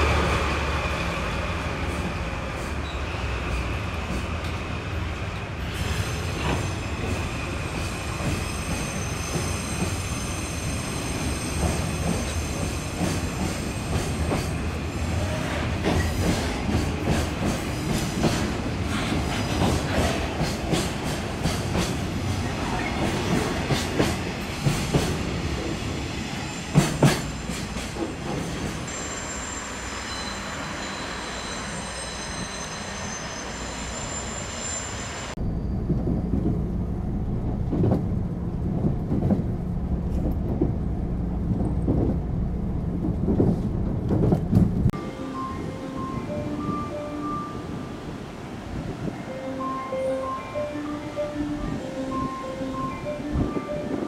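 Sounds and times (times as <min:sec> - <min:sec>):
low steady train drone: 0:00.0 - 0:54.0
high wheel squeal: 0:05.8 - 0:14.4, 0:28.9 - 0:35.9
train wheels clacking: 0:11.1 - 0:14.7, 0:15.4 - 0:25.2.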